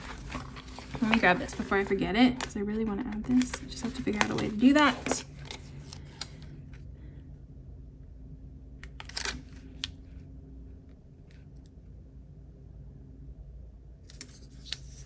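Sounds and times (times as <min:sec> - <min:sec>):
stickers and paper rustling: 0:00.0 - 0:06.5
faint steady hum: 0:00.0 - 0:15.0.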